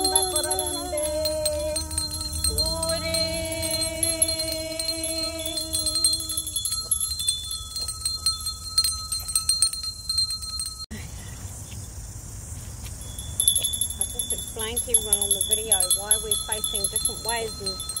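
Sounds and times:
held sung tone: 0.0s - 9.0s
tinkling chimes: 0.0s - 11.0s, 13.0s - 18.0s.

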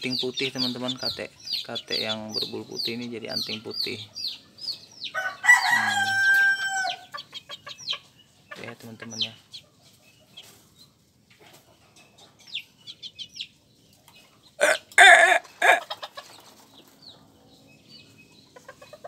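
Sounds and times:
chickens clucking softly: 0.0s - 19.0s
chicken loud call: 5.2s - 7.0s, 14.6s - 16.0s.

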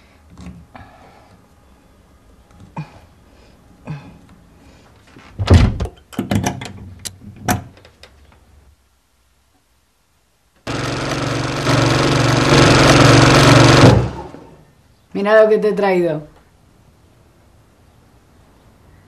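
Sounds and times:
sewing machine stitching: 10.6s - 14.4s.

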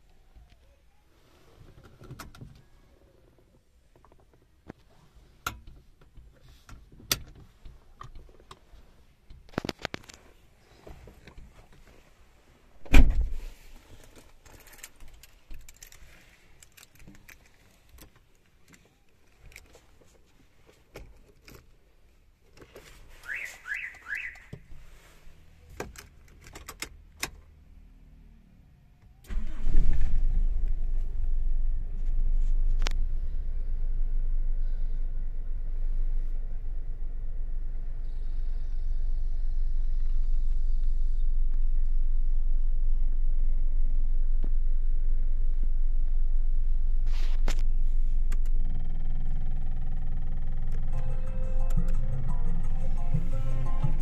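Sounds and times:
loud thump: 12.8s - 13.4s
car engine starting and running: 25.5s - 54.0s.

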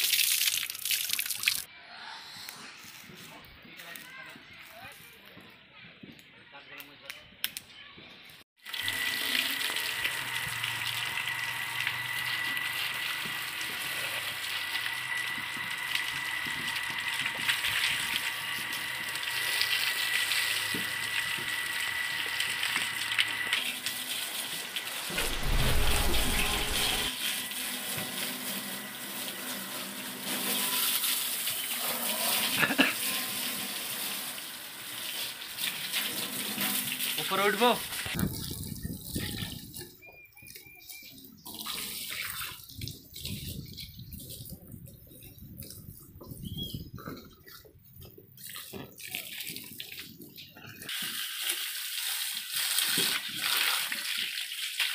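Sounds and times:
hose water spraying on metal: 8.6s - 39.7s, 48.1s - 54.9s
low rumble: 25.1s - 27.2s.

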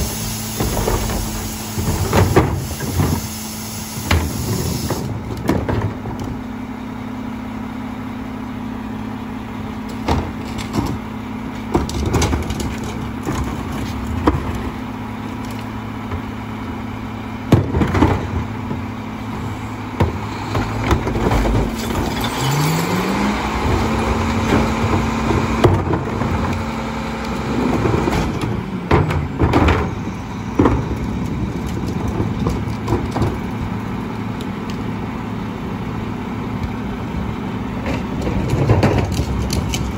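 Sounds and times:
garbage truck engine: 0.0s - 39.9s
trash carts knocking against truck: 0.4s - 3.3s, 4.0s - 6.4s, 9.9s - 11.0s, 11.6s - 14.8s, 17.4s - 19.0s, 19.9s - 22.6s, 23.6s - 26.7s, 27.7s - 33.8s, 37.8s - 39.9s.

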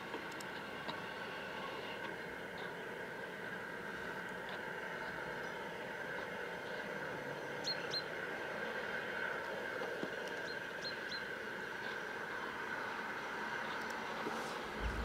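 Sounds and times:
distant steam locomotive hissing: 11.0s - 15.0s.

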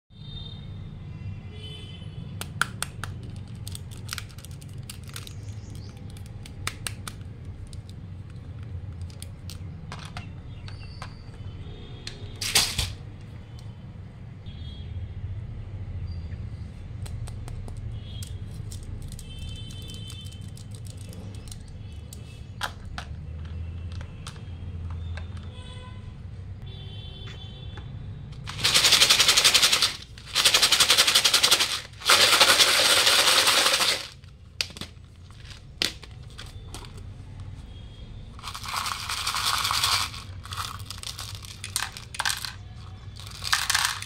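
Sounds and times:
plastic toys clicking and knocking: 2.4s - 11.4s, 12.1s - 13.7s, 17.1s - 25.5s, 28.4s - 37.0s, 38.4s - 44.0s.

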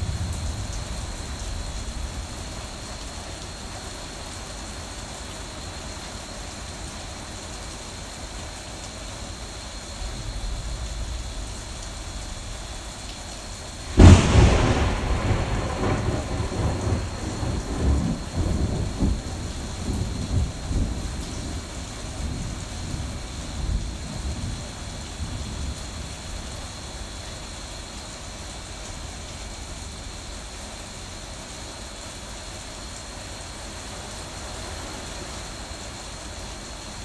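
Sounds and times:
thunderclap and rumbling thunder: 0.0s - 3.1s, 10.0s - 26.4s
rain falling: 0.0s - 37.0s.

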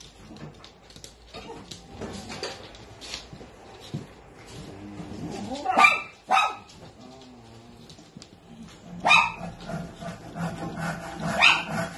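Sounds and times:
dog barking: 5.7s - 6.7s, 9.0s - 9.5s, 11.2s - 11.9s.

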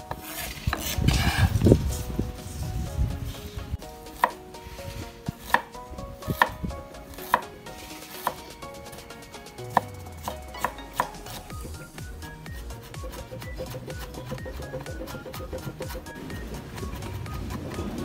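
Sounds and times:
knife cutting on wooden board: 0.0s - 1.8s, 4.1s - 8.6s, 9.7s - 11.9s, 12.5s - 18.0s.

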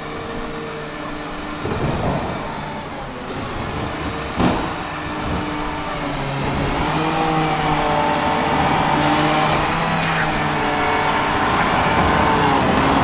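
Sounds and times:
tram electric motor whine: 0.0s - 13.0s
tram wheels rumbling: 0.0s - 13.0s.

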